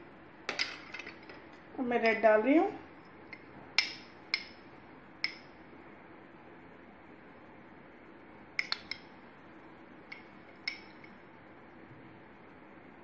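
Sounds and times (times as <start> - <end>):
spoon clinking against glass: 10.1 - 11.1.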